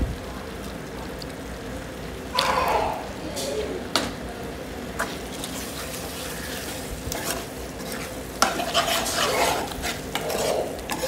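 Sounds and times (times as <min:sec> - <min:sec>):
frying sizzle in pot: 0:04.5 - 0:11.0
spoon scraping metal pot: 0:07.2 - 0:11.0.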